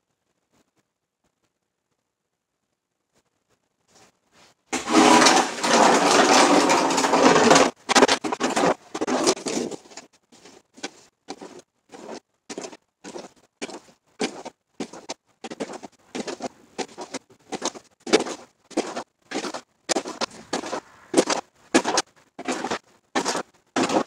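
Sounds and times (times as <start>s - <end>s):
snow shovel scraping concrete: 4.8s - 24.0s.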